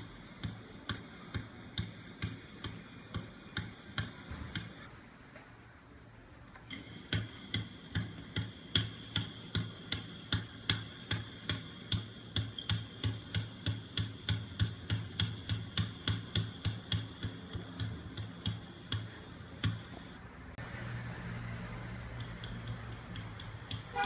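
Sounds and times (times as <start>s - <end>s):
basketball bouncing on hardwood: 0.4s - 4.8s, 7.1s - 19.9s.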